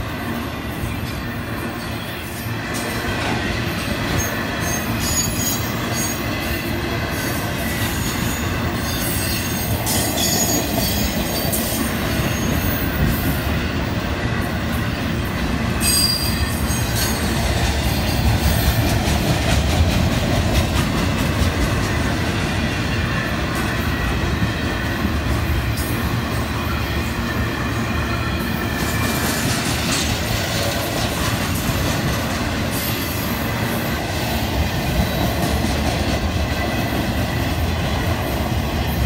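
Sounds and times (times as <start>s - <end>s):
steel wheels rumbling on rail: 0.0s - 39.0s
high-pitched wheel squeals: 4.2s - 6.3s, 15.8s - 17.3s.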